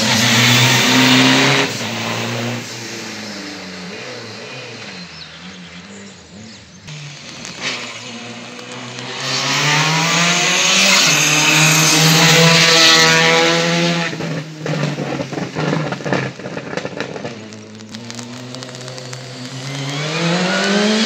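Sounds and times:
race car engine passing: 0.0s - 16.3s
exhaust crackles and pops: 5.2s - 21.0s.

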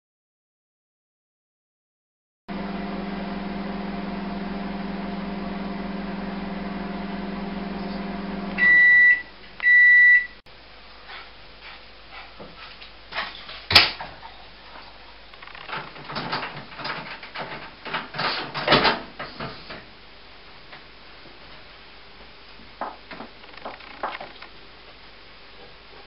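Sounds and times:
microwave oven humming: 2.5s - 10.4s
microwave beeps: 8.6s - 10.4s.

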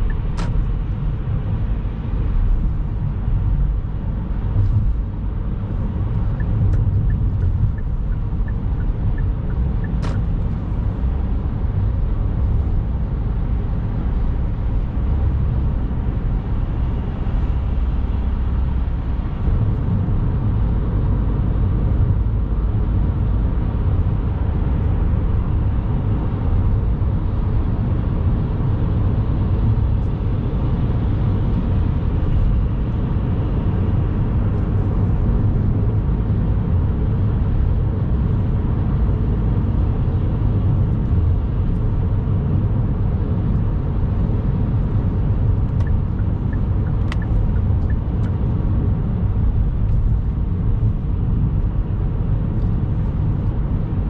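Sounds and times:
car road rumble inside cabin: 0.0s - 54.0s.

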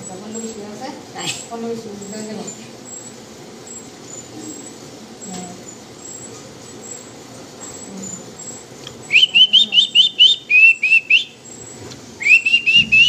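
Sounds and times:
rapid rising whistled notes: 12.2s - 13.0s.

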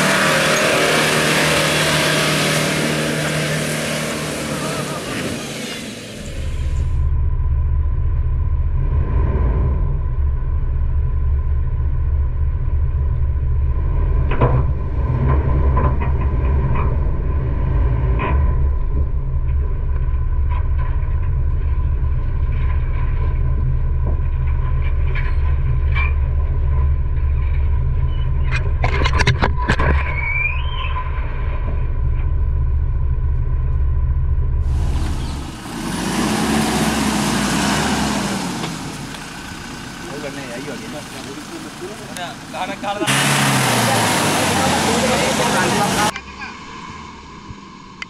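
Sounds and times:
steady low rumble: 6.2s - 29.7s, 31.0s - 35.8s
knocks and scrapes: 14.1s - 32.3s.

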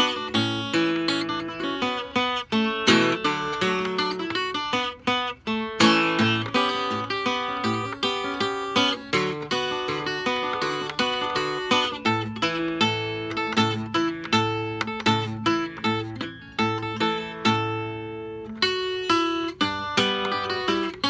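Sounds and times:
fingerstyle acoustic guitar: 0.0s - 21.0s.

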